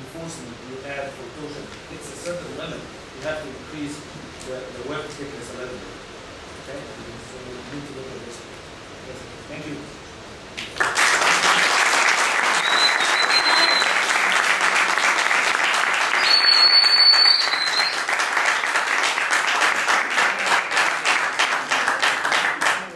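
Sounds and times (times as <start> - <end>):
audience applause: 10.6 - 22.9
high whistle-like tone: 12.6 - 14.0, 16.1 - 18.1.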